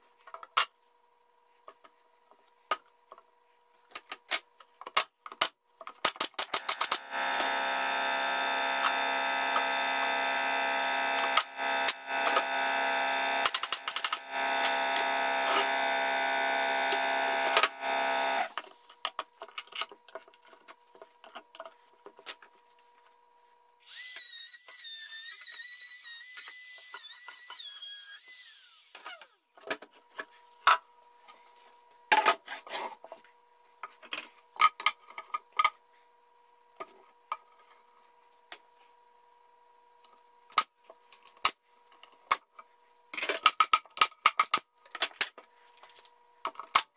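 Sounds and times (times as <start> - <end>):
power tool whining: 6.5 - 18.6, 23.8 - 29.4
loud machine drone: 6.6 - 18.6.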